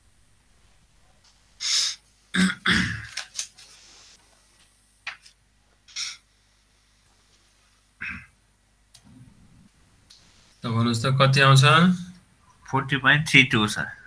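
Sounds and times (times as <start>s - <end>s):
person clearing throat: 2.3s - 3.2s, 8.0s - 8.4s.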